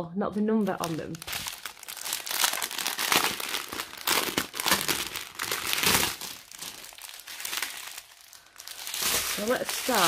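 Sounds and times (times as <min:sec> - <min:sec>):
thin plastic crinkling: 0:00.6 - 0:10.0.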